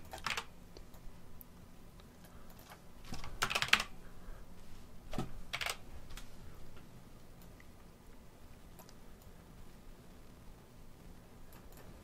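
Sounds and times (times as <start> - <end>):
typing on computer keyboard: 0.0 - 1.1, 2.2 - 4.0, 5.2 - 6.3.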